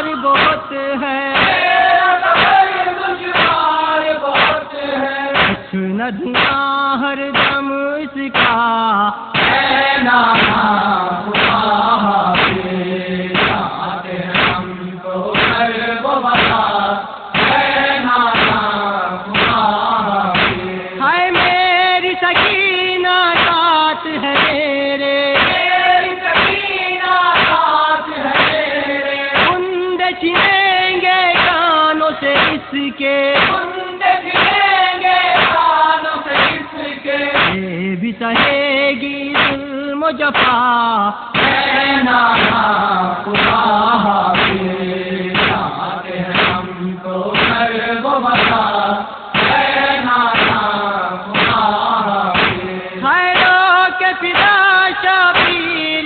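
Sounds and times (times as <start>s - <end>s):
regular beat: 0.0s - 0.7s, 1.3s - 3.7s, 4.4s - 4.7s, 5.4s - 6.7s, 7.4s - 7.7s, 8.3s - 8.6s, 9.4s - 15.8s, 16.4s - 16.7s, 17.3s - 22.7s, 23.3s - 24.7s, 25.3s - 27.7s, 28.3s - 28.7s, 29.3s - 29.7s, 30.4s - 30.7s, 31.3s - 31.6s, 32.4s - 32.8s, 33.4s - 37.7s, 38.4s - 38.7s, 39.4s - 39.7s, 40.3s - 40.6s, 41.4s - 42.8s, 43.4s - 47.8s, 48.4s - 48.7s, 49.4s - 50.8s, 51.4s - 52.7s, 53.3s - 53.6s
men chanting a lament: 0.0s - 56.0s
hands striking chests: 0.4s - 0.6s, 1.4s - 1.8s, 2.4s - 2.7s, 3.3s - 3.6s, 4.4s - 4.7s, 5.4s - 5.7s, 6.4s - 6.6s, 7.4s - 7.6s, 8.4s - 8.6s, 9.4s - 9.7s, 10.3s - 10.7s, 11.4s - 11.7s, 12.4s - 12.7s, 13.4s - 13.7s, 14.3s - 14.7s, 15.4s - 15.7s, 16.4s - 16.7s, 17.4s - 18.7s, 19.4s - 19.7s, 20.3s - 20.8s, 21.4s - 21.6s, 22.4s - 22.6s, 23.4s - 23.6s, 24.4s - 24.6s, 25.4s - 25.7s, 26.4s - 26.7s, 27.4s - 27.6s, 28.3s - 28.7s, 29.4s - 29.6s, 30.4s - 30.6s, 31.3s - 31.6s, 32.4s - 32.7s, 33.4s - 33.6s, 34.4s - 35.7s, 36.3s - 36.7s, 37.4s - 37.7s, 38.4s - 38.7s, 39.4s - 39.6s, 40.4s - 40.6s, 41.4s - 42.7s, 43.4s - 43.7s, 44.4s - 44.7s, 45.4s - 45.7s, 46.3s - 46.7s, 47.4s - 47.7s, 48.4s - 48.7s, 49.4s - 50.8s, 51.4s - 51.8s, 52.4s - 52.7s, 53.4s - 53.6s, 54.4s - 54.6s, 55.4s - 55.6s.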